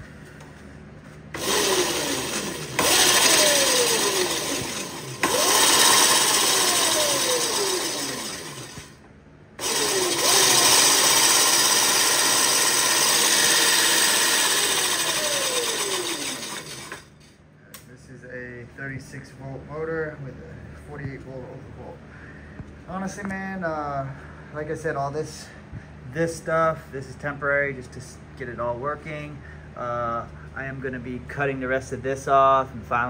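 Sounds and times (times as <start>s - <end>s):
electric motor whining: 1.3s - 9.0s, 9.6s - 17.2s.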